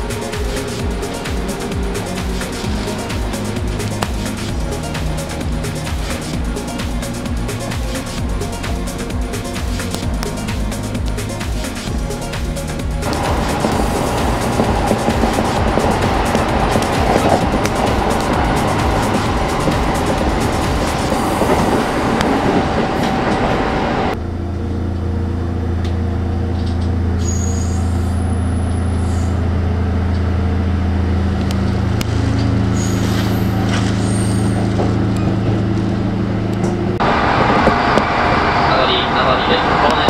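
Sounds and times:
electric train running: 0.0s - 24.2s, 27.8s - 40.0s.

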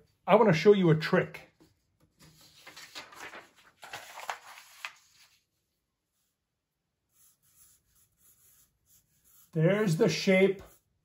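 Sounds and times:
paper rustling: 1.6s - 5.6s
pencil strokes on paper: 7.0s - 11.0s.

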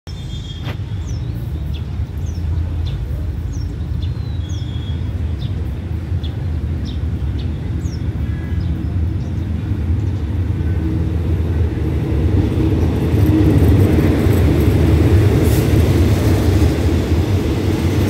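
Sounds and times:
bird chirping: 0.1s - 5.6s
diesel locomotive rumble: 0.1s - 18.0s.

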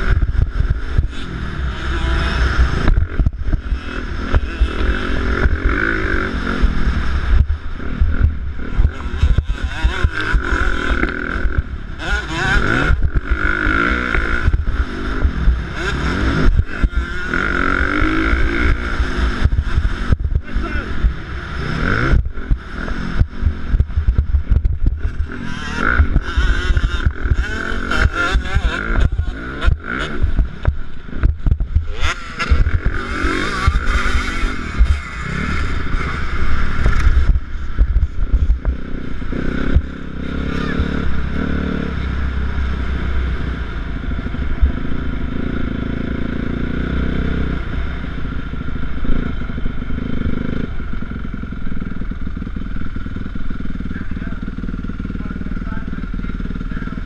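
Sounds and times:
dirt bike engine revving: 0.0s - 57.0s
wind noise on microphone: 6.6s - 10.7s, 17.9s - 41.3s.

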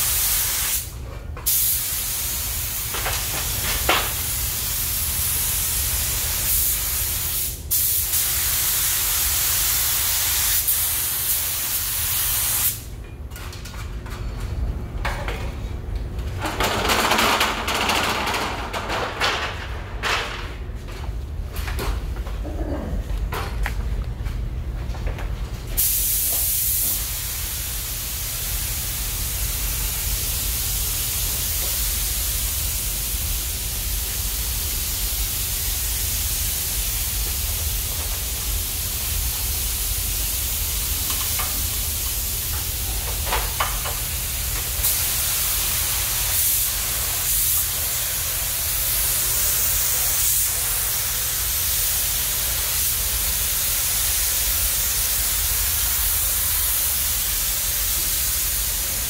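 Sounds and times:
paint spray gun hissing: 0.0s - 0.9s, 1.5s - 12.8s, 25.8s - 59.0s
steady low hum: 12.8s - 16.9s, 17.7s - 25.8s.

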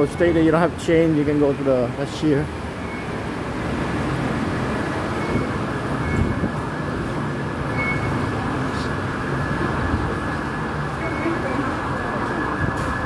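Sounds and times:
rumbling hubbub of station hall: 0.0s - 13.0s
fare gate beeps: 2.8s - 3.4s, 5.1s - 6.5s, 7.6s - 8.8s.

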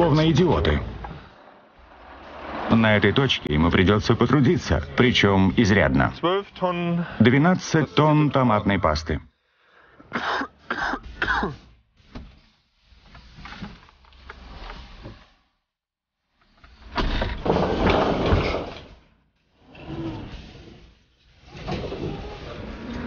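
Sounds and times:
man coughing: 10.1s - 11.7s.

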